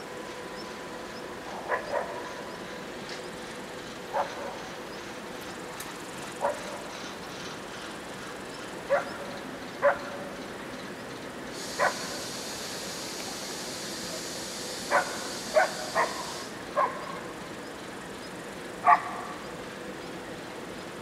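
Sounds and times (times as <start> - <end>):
dog barking: 1.7 - 2.2, 4.1 - 4.5, 6.4 - 6.8, 8.9 - 9.1, 9.8 - 10.0, 11.8 - 12.1, 14.9 - 17.1, 18.8 - 19.2
steady high hiss: 11.2 - 21.0.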